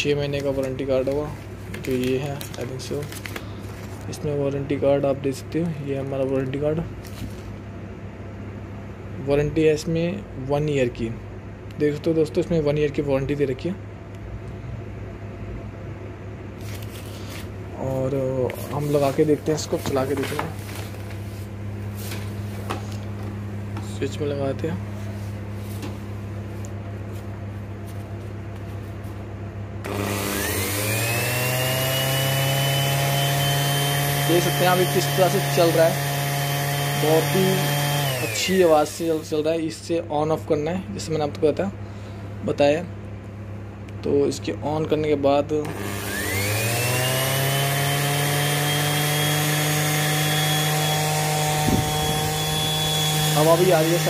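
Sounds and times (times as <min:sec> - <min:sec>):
sander motor whining: 0:29.8 - 0:39.3, 0:45.6 - 0:54.0.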